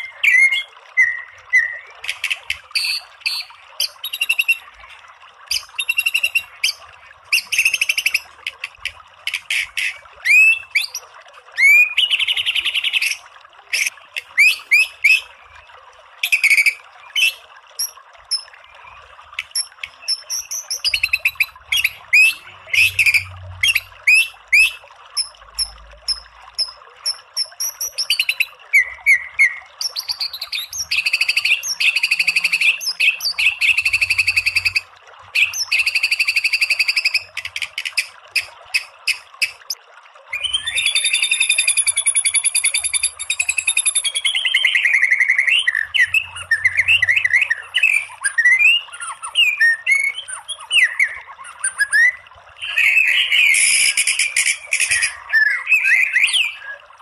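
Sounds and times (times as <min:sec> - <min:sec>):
songbird singing: 0:00.0 - 0:04.6, 0:40.3 - 0:56.8.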